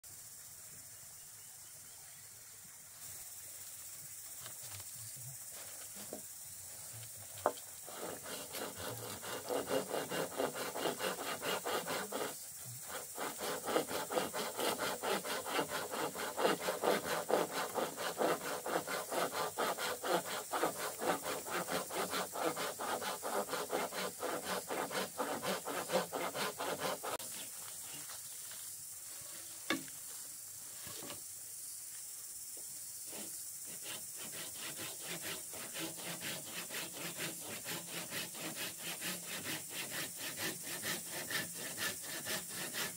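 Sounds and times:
steady high hiss: 0.0s - 42.9s
blade rasping on bamboo: 7.4s - 28.1s, 33.1s - 42.9s.

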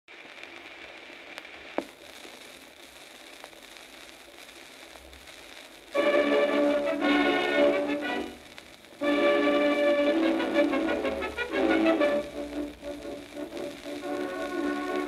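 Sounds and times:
record surface hiss and crackle: 0.1s - 15.0s
brass band march: 9.0s - 12.4s.

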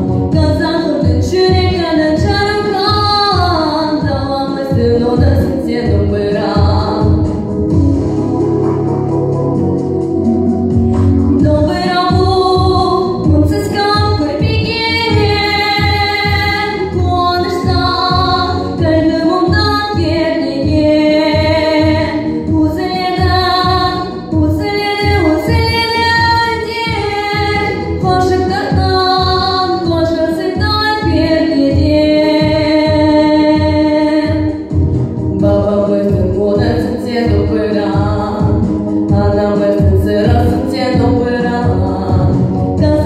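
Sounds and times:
girl singing: 0.0s - 7.2s, 11.4s - 34.5s, 35.4s - 43.0s
recorded accompaniment with pulse: 0.0s - 43.0s.

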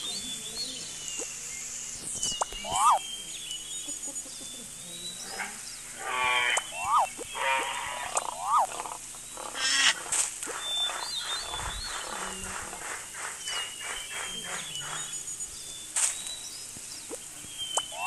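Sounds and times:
bird-like whistles: 2.0s - 3.7s, 17.1s - 18.0s
repeated animal calls: 2.0s - 16.3s, 16.9s - 18.0s.

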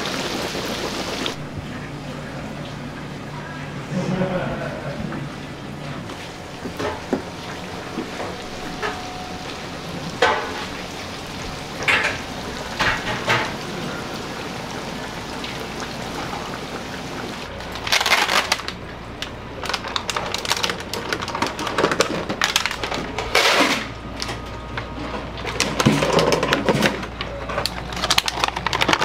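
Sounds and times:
plastic bag crinkling: 17.6s - 23.3s, 27.5s - 29.0s.

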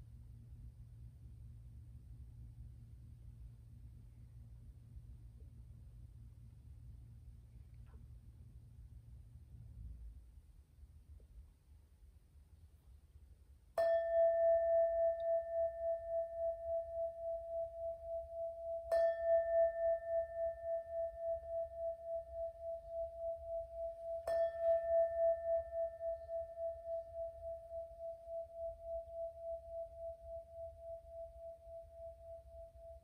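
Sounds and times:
singing bowl ringing: 13.8s - 33.0s.

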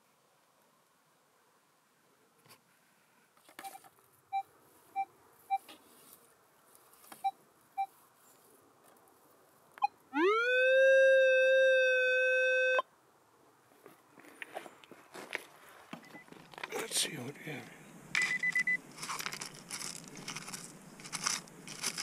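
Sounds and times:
metal detector short pips: 18.2s - 22.0s.

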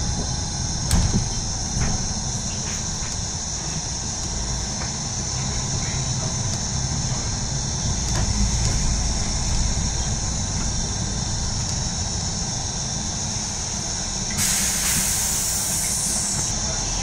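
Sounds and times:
bus engine and road rumble: 0.0s - 17.0s
loud rush of air hiss: 13.2s - 16.6s
high-pitched hiss: 13.3s - 17.0s.

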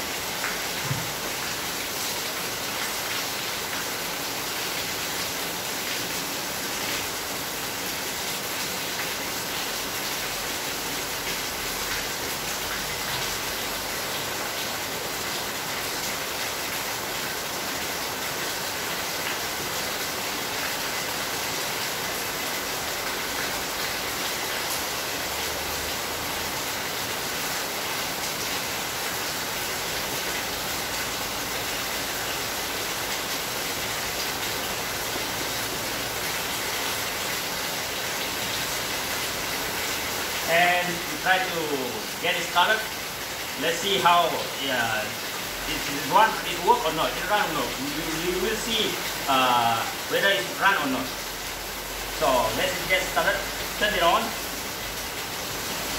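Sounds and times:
steady hiss: 40.1s - 55.9s.

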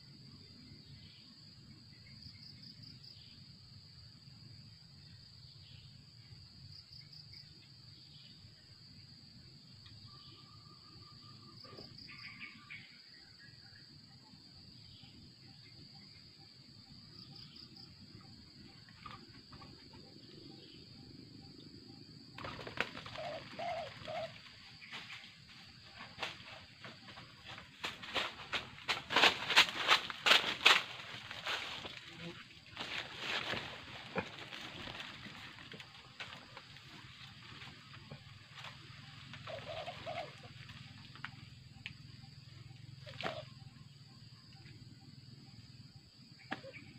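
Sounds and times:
high insect drone: 0.0s - 46.9s
dove cooing: 22.4s - 24.6s, 38.1s - 41.0s, 43.0s - 43.6s
branches knocking and snapping: 27.5s - 32.0s.

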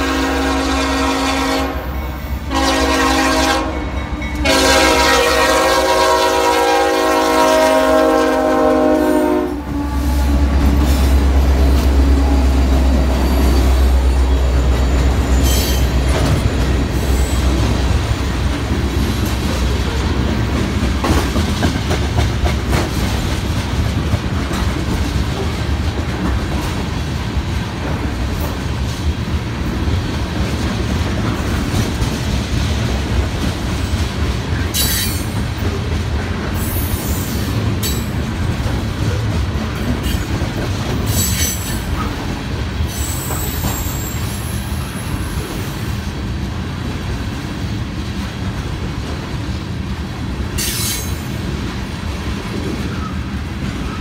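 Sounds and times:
locomotive air horn: 0.0s - 11.4s
train wheels clickety-clack: 10.2s - 54.0s.

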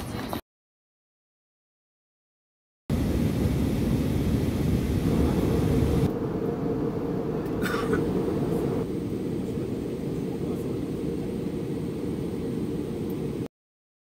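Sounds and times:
airliner cabin rumble: 2.9s - 13.5s.

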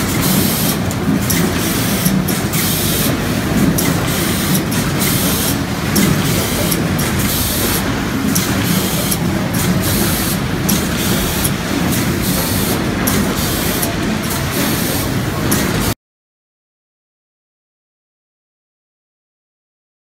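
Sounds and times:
machinery hum: 0.0s - 16.0s.

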